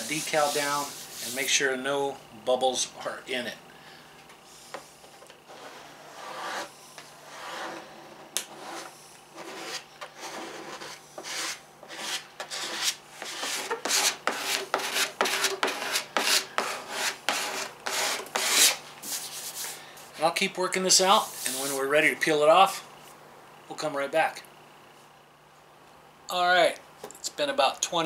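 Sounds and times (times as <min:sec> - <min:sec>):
plastic scraper rubbing on paper: 0:05.5 - 0:19.8.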